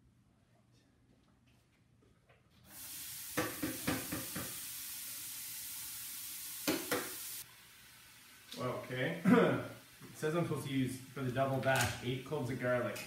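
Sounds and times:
vegetables sizzling in oil: 2.7s - 13.0s.

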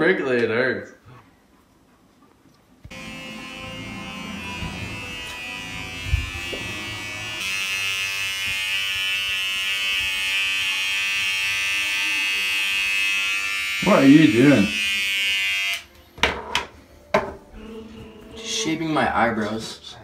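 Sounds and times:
electric hair trimmer buzzing: 2.9s - 15.9s.

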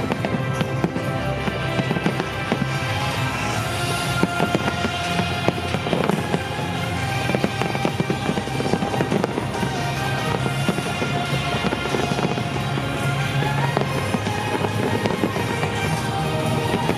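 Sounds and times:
fireworks bursting and crackling: 0.0s - 16.9s
music playing: 0.0s - 16.9s.

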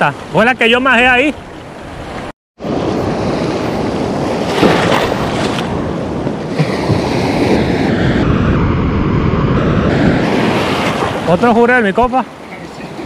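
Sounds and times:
surf breaking in shallow water: 0.0s - 13.0s.

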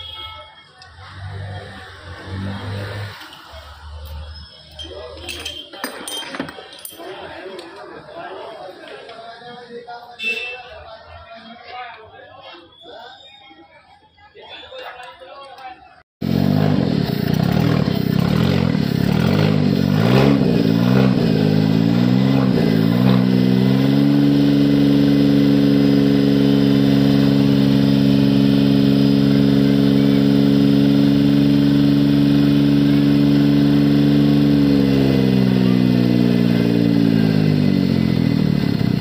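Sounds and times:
car engine revving and idling: 0.8s - 4.2s, 16.2s - 39.0s.

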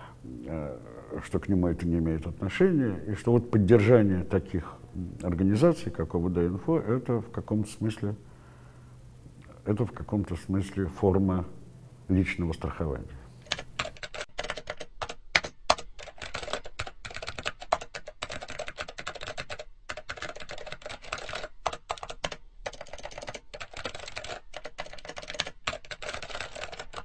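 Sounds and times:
rapid typing on keyboard: 13.4s - 27.0s.

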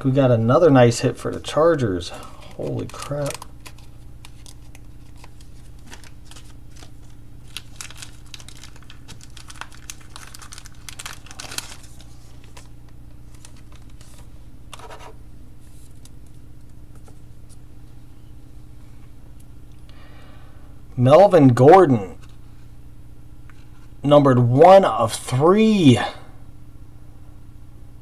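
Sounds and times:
low electrical hum: 0.0s - 28.0s
packaging crinkling and rustling: 1.3s - 17.2s.

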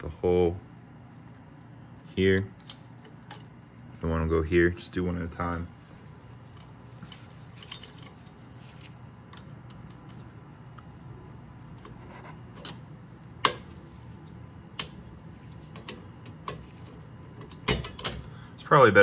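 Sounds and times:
low steady hum: 0.0s - 19.0s
metallic clicks of pliers and spring: 17.4s - 18.3s.

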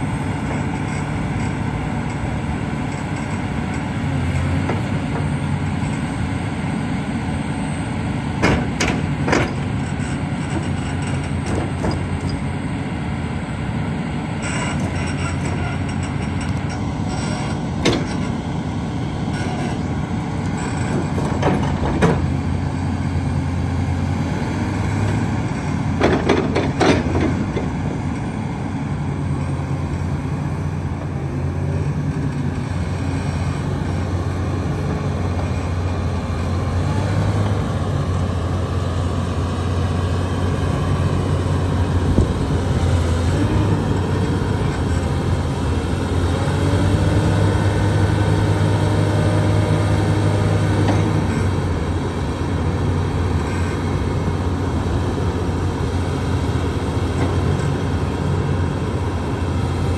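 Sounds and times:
diesel engine running: 0.0s - 59.9s
hydraulic whines: 14.4s - 18.5s.

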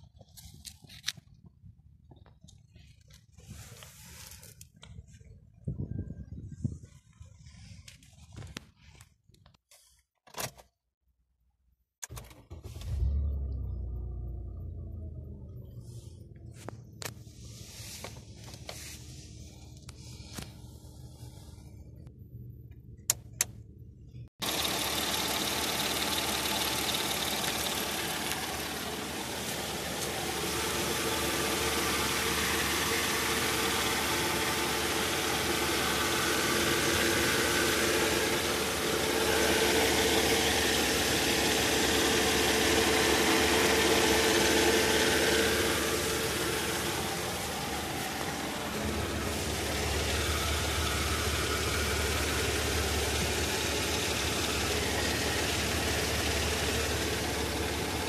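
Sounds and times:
car engine idling: 12.2s - 58.0s.

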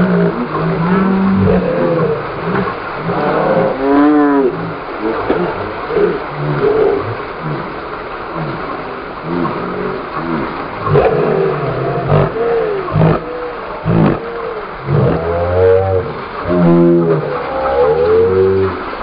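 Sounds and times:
vehicle engine revving: 8.4s - 14.2s.

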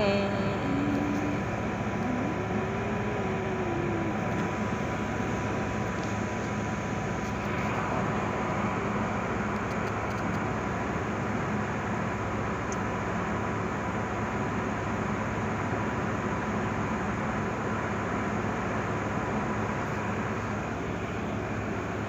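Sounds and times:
thin steady tone: 0.0s - 9.5s
short rising whine: 0.0s - 10.9s
diesel engine drone: 0.0s - 22.0s.

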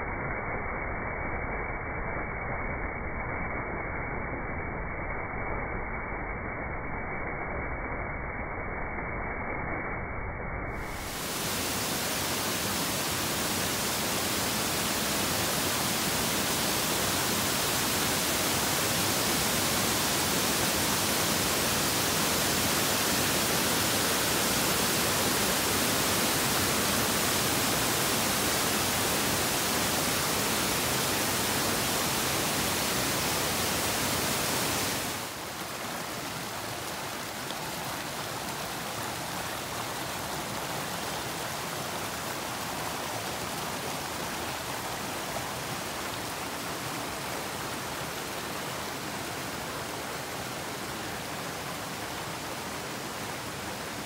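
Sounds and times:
river water rushing: 10.9s - 54.0s.

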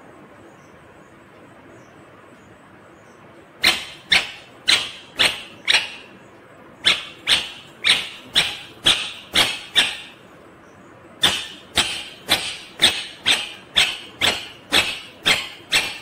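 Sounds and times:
parakeet short sharp calls: 3.6s - 6.1s, 6.8s - 10.2s.

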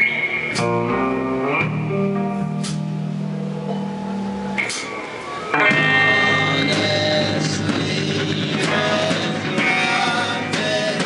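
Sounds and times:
live rock band playing: 0.0s - 11.0s.

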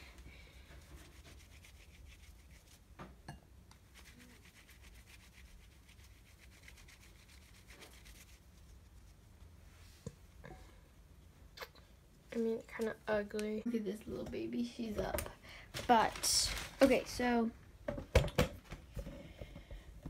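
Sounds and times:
hands rubbing and rustling paper: 0.6s - 2.9s, 3.9s - 9.4s, 15.1s - 17.4s.

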